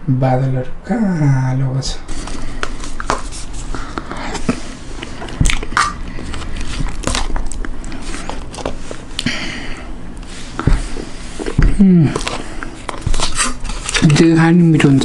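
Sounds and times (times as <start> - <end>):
person biting and chewing: 2.4 - 9.4.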